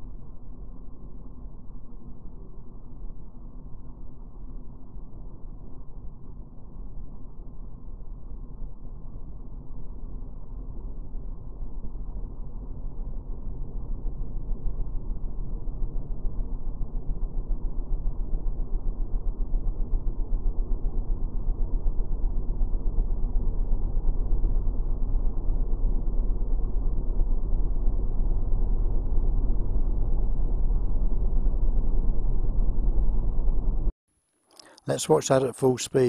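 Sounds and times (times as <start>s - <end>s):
wind rumble: 11.5s - 33.9s
motorcycle engine: 13.5s - 33.9s.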